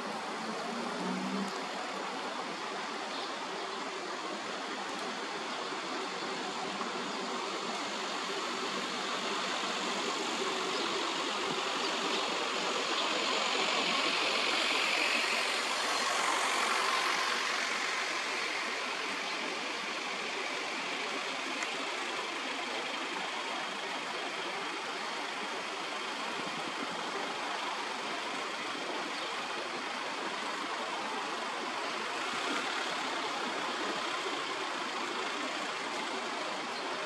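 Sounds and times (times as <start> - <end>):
distant road traffic: 0.0 - 37.0.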